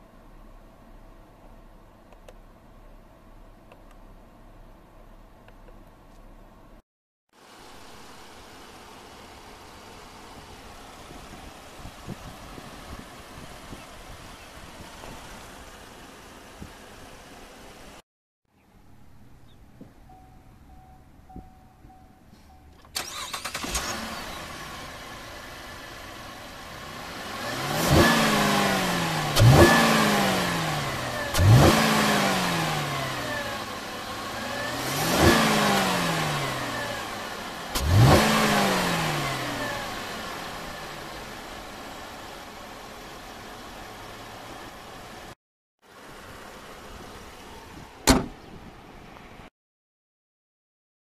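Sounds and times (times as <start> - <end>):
car engine idling: 7.4 - 18.0, 18.6 - 49.4
car engine starting: 7.4 - 18.0, 19.0 - 45.4
engine revving: 22.8 - 41.9.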